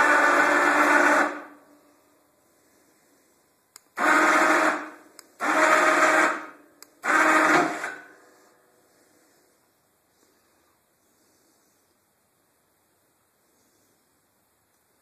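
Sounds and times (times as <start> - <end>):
electric winch running: 0.0 - 1.6, 4.0 - 8.4
faint click: 3.7 - 3.9, 14.7 - 14.9.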